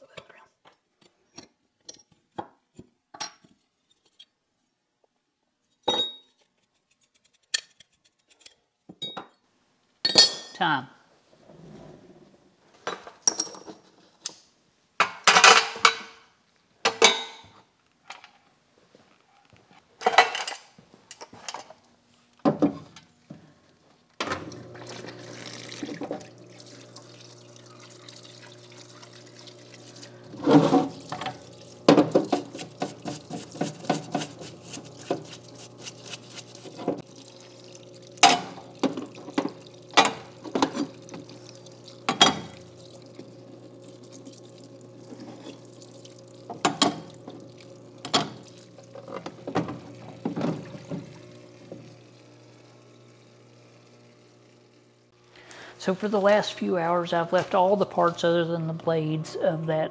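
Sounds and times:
pump humming: 24.2 - 58.4
liquid running from a brush: 24.8 - 52.4.

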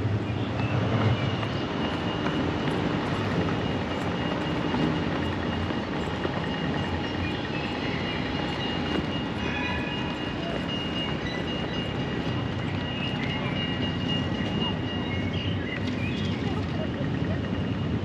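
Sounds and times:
street traffic rumble: 0.0 - 18.0.

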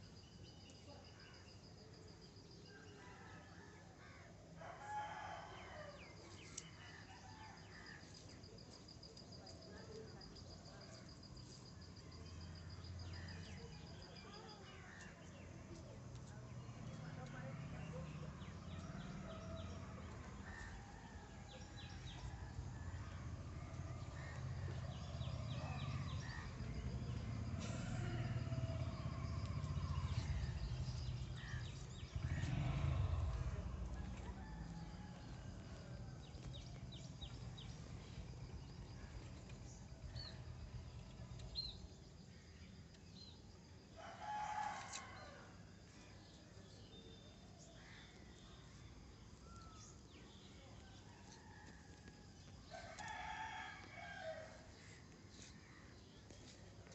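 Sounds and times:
low rumble: 21.3 - 41.3.

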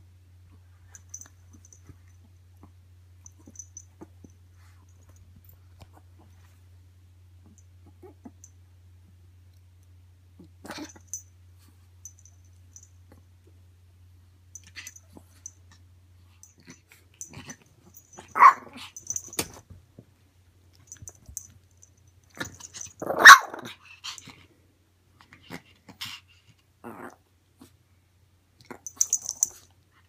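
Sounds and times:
small dog barking: 18.2 - 18.9, 23.0 - 23.7.

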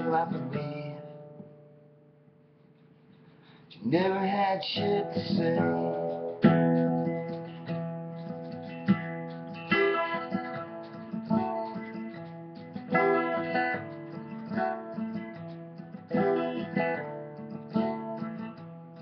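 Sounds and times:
acoustic guitar strummed slowly: 0.0 - 19.0.

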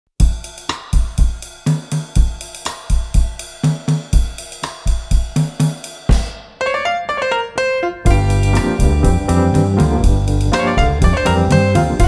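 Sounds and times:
hi-hat: 0.2 - 6.3, 8.1 - 12.0
kick drum beat: 0.2 - 6.4, 8.1 - 12.0
bass line: 8.1 - 12.0.

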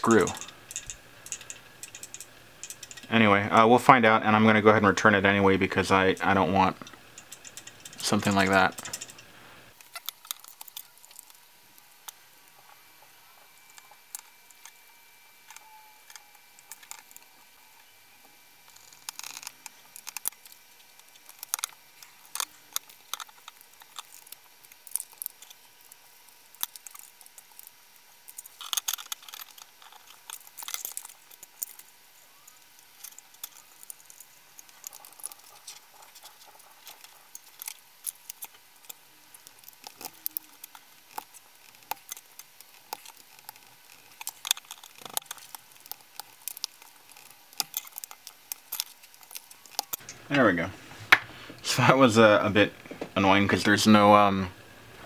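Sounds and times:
plastic parts clicking: 18.7 - 31.9, 32.5 - 50.1.

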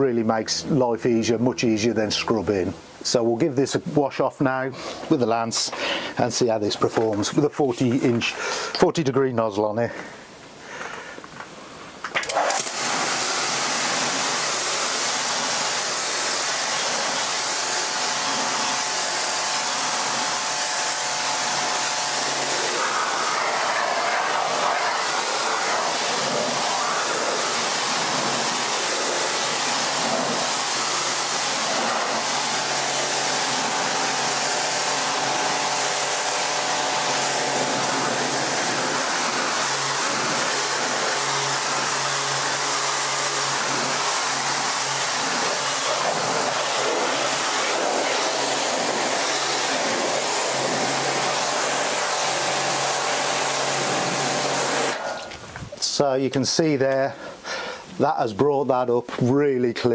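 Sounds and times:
pressure washer spraying concrete: 12.2 - 55.4.

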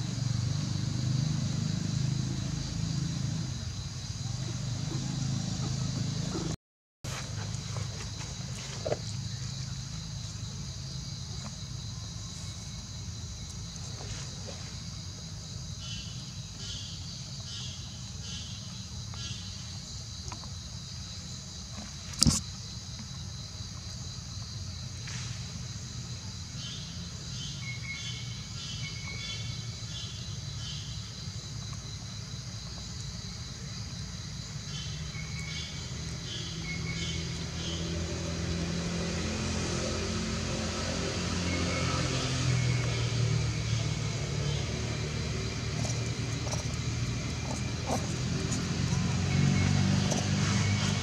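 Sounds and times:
high-pitched insect chorus: 0.0 - 51.0
rapid pulsed chirping: 42.6 - 51.0.

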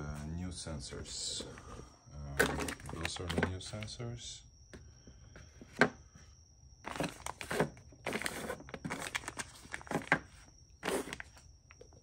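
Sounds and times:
packaging rustling and crinkling: 2.4 - 3.5, 6.9 - 11.4.

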